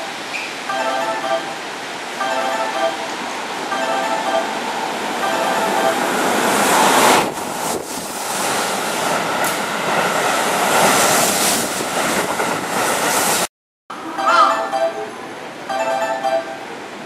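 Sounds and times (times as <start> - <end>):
electric train passing: 0.0 - 17.0.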